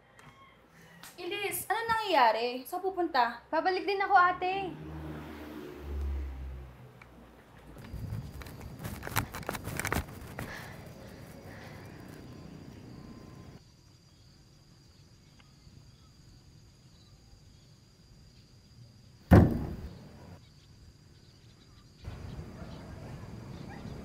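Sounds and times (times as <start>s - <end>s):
outdoor background noise: 0.0s - 24.0s.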